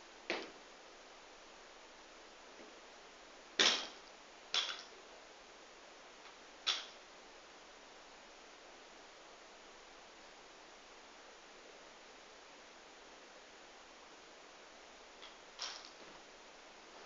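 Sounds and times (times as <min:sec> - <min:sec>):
faint room hiss: 0:00.0 - 0:17.0
barbell dropped on gym floor: 0:03.6 - 0:04.0.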